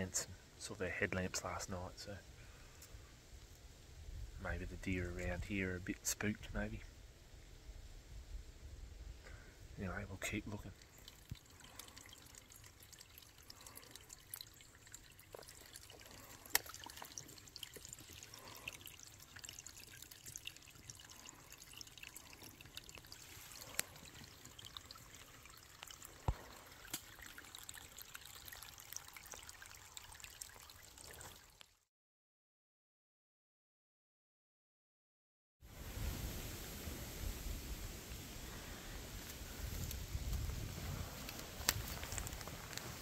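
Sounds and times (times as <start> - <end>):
water drips and splashes: 9.9 - 31.8, 35.8 - 43.0
water trickling into plastic bag: 10.2 - 31.8, 39.2 - 43.0.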